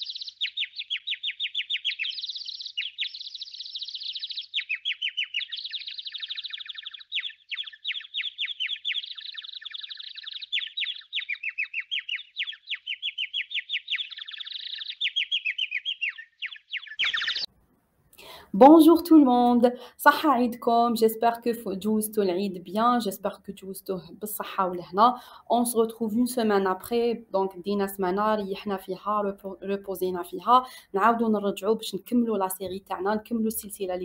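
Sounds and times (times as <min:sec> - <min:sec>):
songbird singing trills: 0:00.0 - 0:17.5.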